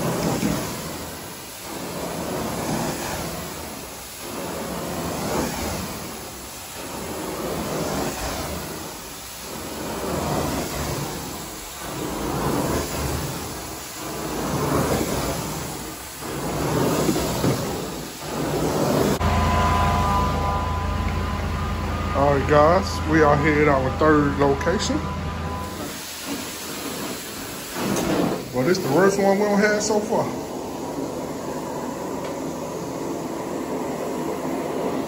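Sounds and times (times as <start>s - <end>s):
carpet cleaning machine rushing: 0.0s - 35.0s.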